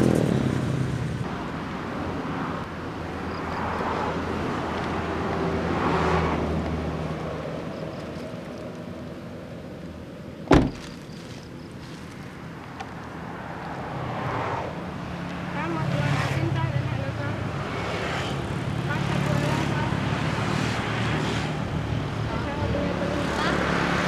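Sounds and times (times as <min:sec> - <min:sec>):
road and traffic noise: 0:00.0 - 0:24.0
sharp thump: 0:10.5 - 0:11.0.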